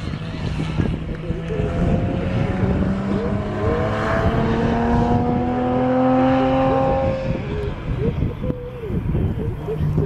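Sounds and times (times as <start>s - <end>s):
race car engine accelerating: 0.0s - 8.0s.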